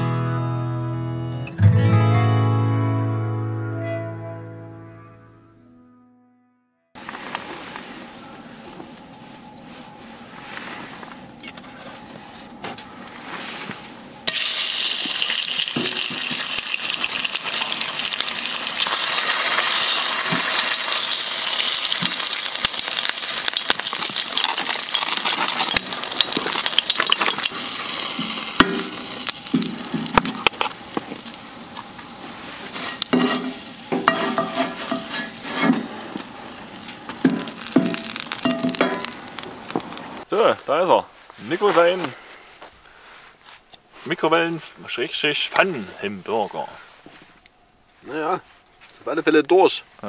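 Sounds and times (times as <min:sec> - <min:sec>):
hot oil sizzling in frying pan: 0:14.3 - 0:40.3.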